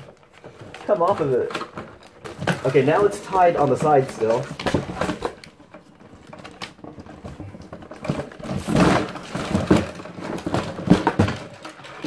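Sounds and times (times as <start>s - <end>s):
cardboard box rustling and scraping: 0.0s - 12.0s.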